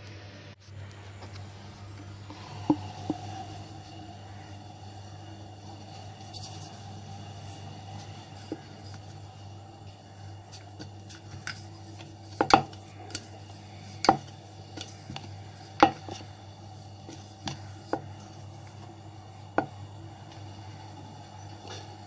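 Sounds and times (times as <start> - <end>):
steady low hum: 0.0 - 22.0
rolling pin knocking on wooden board: 10.8 - 13.3, 13.9 - 16.2.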